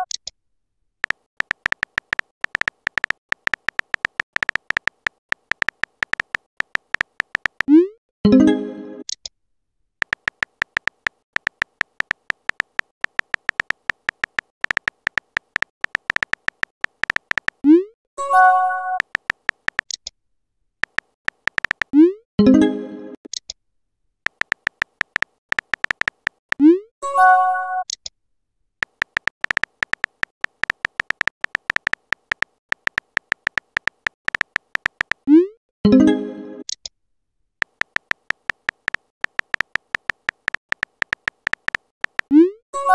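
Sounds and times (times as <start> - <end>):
electronic key clicks: 1.0 - 7.7, 10.0 - 17.6, 20.8 - 22.0, 24.3 - 26.6, 28.8 - 35.3, 37.6 - 42.4
chiming notification tone: 35.9 - 36.6.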